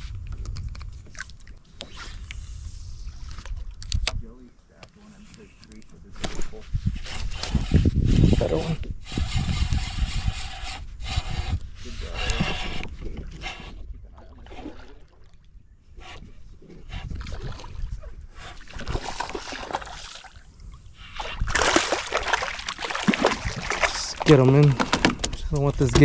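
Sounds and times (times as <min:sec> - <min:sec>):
water splashing and sloshing: 0:00.6 - 0:04.0, 0:12.0 - 0:26.0.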